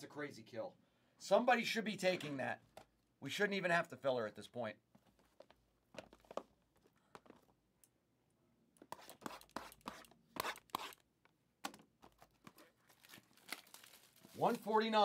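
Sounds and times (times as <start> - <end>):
foil packs crinkling: 12.2 - 15.0.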